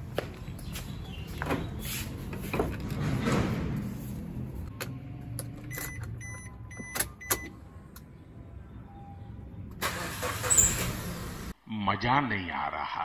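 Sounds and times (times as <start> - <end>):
car warning chime beeps: 5.7 - 7.6.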